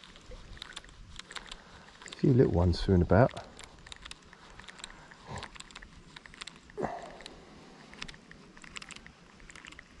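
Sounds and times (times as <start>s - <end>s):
rustle: 0.0s - 10.0s
fishing reel clicking: 8.0s - 10.0s.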